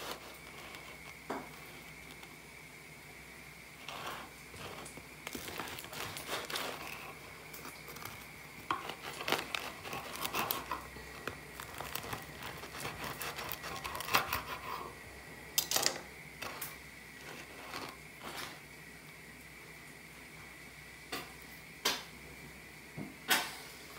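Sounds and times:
bread crust crunching under knife: 0:00.0 - 0:02.4, 0:03.8 - 0:14.9, 0:15.6 - 0:18.6.

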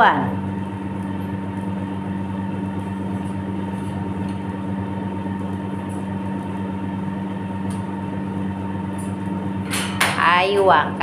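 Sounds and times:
machine hum: 0:00.0 - 0:11.0
person speaking: 0:10.2 - 0:11.0.

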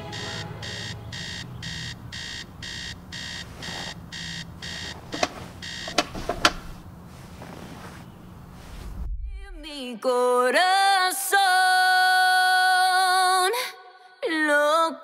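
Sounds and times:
alarm clock beeping: 0:00.0 - 0:06.3.

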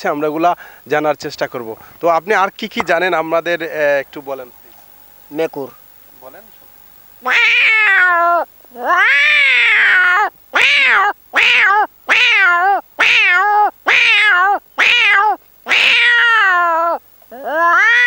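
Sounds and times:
man imitating cat meows: 0:07.2 - 0:18.0.

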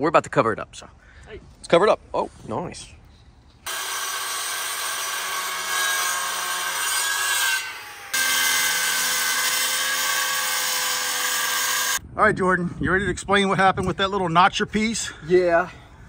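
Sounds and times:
circular saw cutting: 0:03.6 - 0:12.0.

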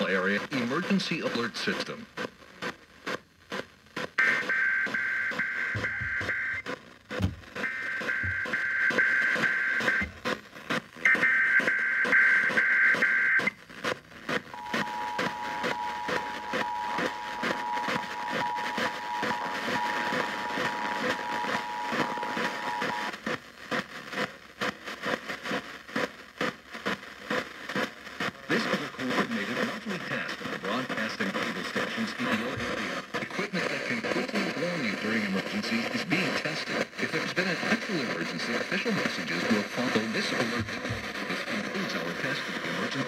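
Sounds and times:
radio static hiss: 0:00.0 - 0:43.0
two-tone attention signal: 0:04.2 - 0:06.6
warbling data tones: 0:04.2 - 0:06.6, 0:14.6 - 0:23.1.

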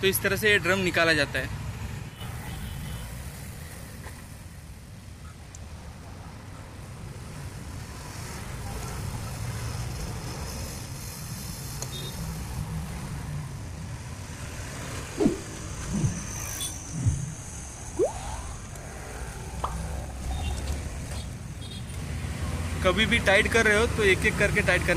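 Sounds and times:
road traffic rumbling: 0:01.5 - 0:24.9
vehicle passing: 0:14.4 - 0:21.1.

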